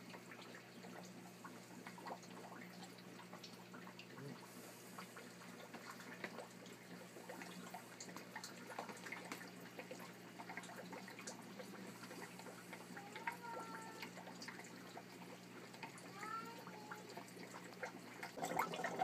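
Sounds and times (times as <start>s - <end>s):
water trickling and dripping: 0.0s - 19.0s.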